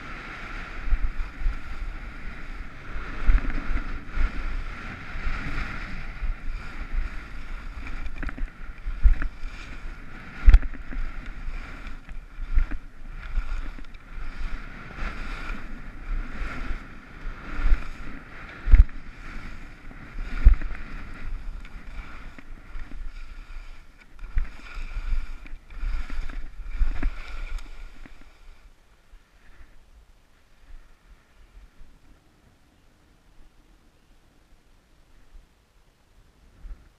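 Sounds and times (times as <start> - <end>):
skis thumping on bumps: 0.0 - 28.7
wind on microphone: 0.0 - 28.8
skis scraping over snow: 0.0 - 32.4.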